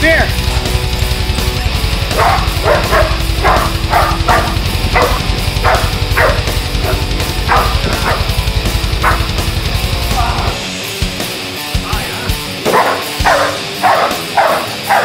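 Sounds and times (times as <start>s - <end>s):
loud background music: 0.0s - 15.0s
dog barking: 2.1s - 8.4s, 9.0s - 9.3s, 12.6s - 15.0s.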